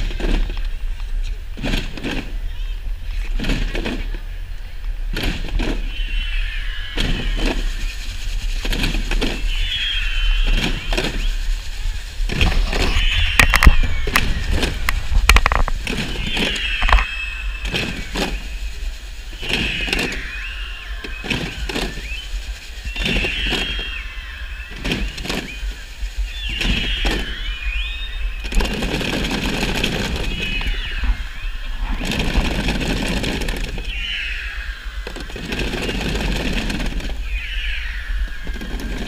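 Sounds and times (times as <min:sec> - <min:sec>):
children's high voices: 0:09.5 - 0:15.2.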